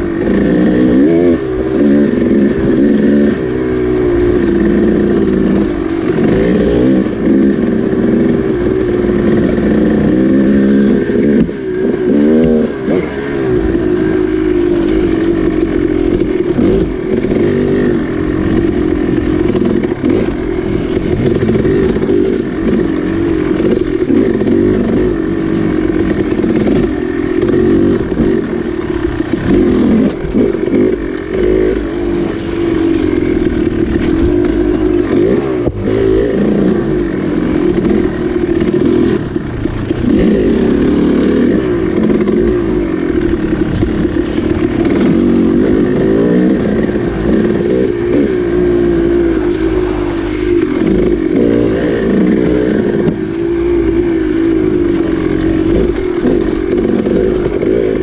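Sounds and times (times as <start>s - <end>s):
dirt bike engine revving: 0.0s - 58.0s.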